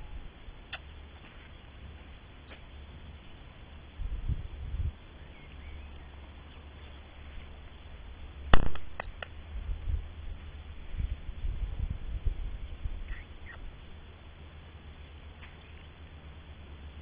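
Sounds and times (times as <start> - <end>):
sharp click: 8.6 - 9.3.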